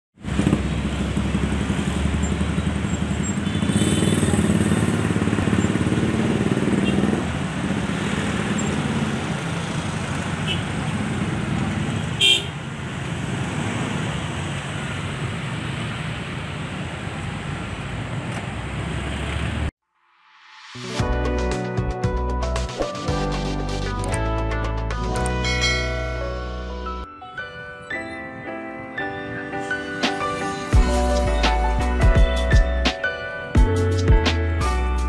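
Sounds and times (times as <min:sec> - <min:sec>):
motorcycle and car engines: 0:00.2 - 0:19.8
car horn toot: 0:03.4 - 0:04.5, 0:10.4 - 0:10.7, 0:12.2 - 0:12.6.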